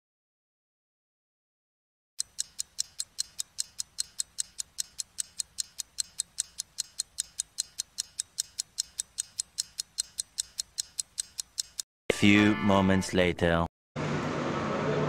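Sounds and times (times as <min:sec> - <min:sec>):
clock ticking: 0:02.2 - 0:11.9.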